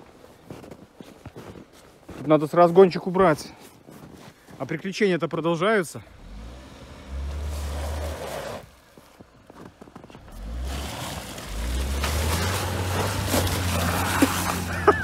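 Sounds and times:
tyres churning snow and slush: 0.3s - 15.0s
car engine pulling hard: 6.1s - 8.8s, 10.1s - 15.0s
slush splashing: 11.0s - 15.0s.

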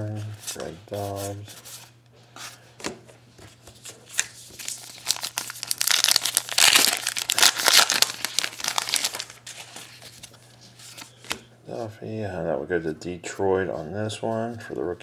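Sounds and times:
wrapper tearing and crinkling: 4.1s - 10.3s.

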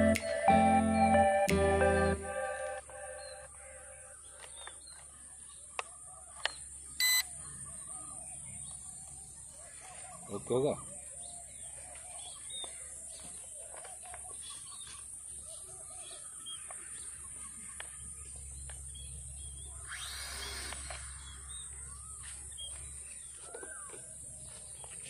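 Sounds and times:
birds chirping: 0.0s - 25.0s
rough bird call: 19.6s - 22.7s.

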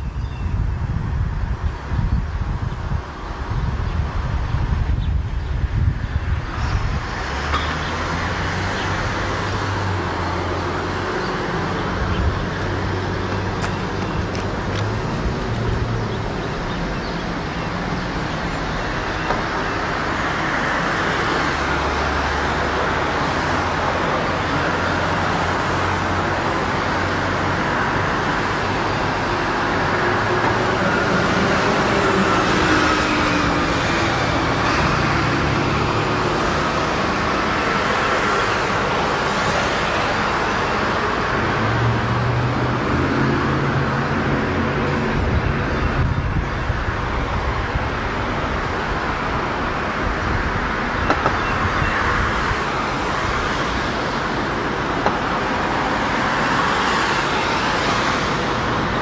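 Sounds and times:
diesel locomotive engine: 0.0s - 59.0s
steady background noise: 0.0s - 59.0s.

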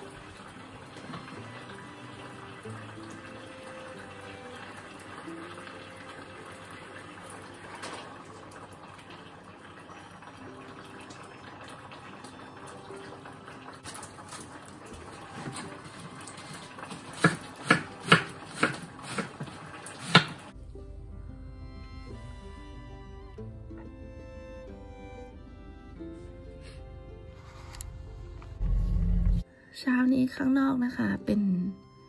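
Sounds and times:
faint running water: 0.0s - 21.0s
knife chopping on cutting board: 17.2s - 20.4s.

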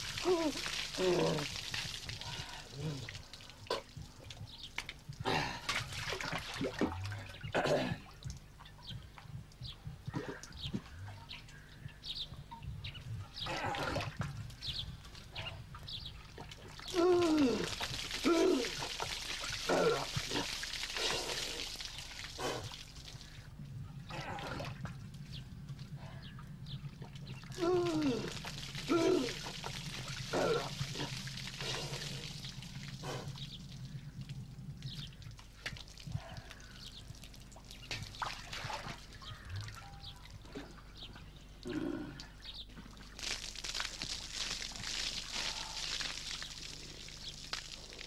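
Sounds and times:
water splashing over person: 0.0s - 8.3s, 12.8s - 23.4s, 26.2s - 41.1s, 41.7s - 48.0s.

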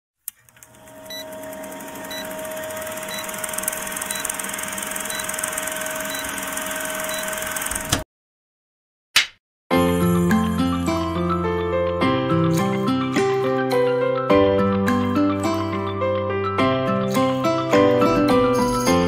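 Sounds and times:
film projector whir and crackle: 0.2s - 8.0s.

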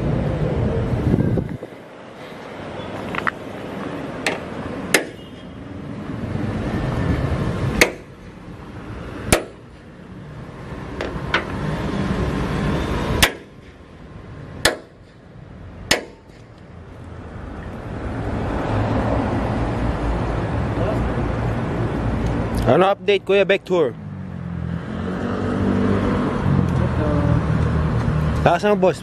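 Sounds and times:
hammer striking metal: 4.2s - 5.3s, 7.8s - 8.2s, 9.3s - 9.6s, 13.2s - 13.8s, 14.6s - 15.2s, 15.9s - 16.5s.

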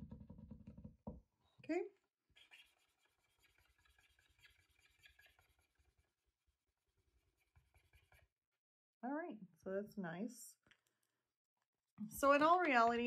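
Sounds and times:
marker scratching on paper: 2.4s - 6.0s, 7.2s - 8.3s.

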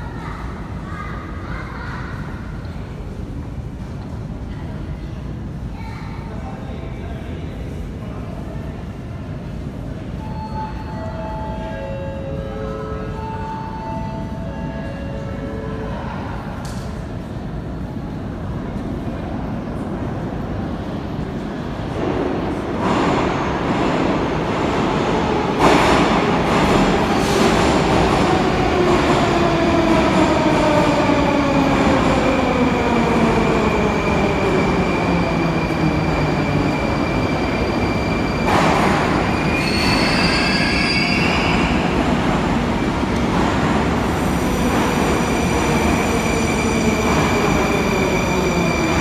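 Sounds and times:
high brake squeal: 39.3s - 41.8s.

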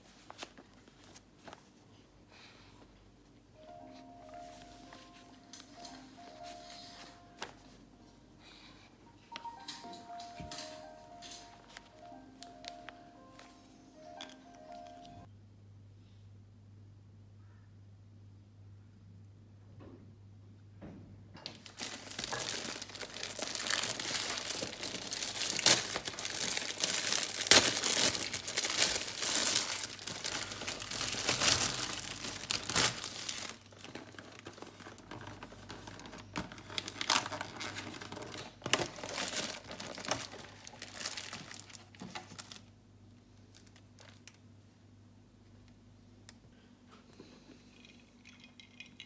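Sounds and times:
crinkling and crackling: 21.4s - 44.5s.

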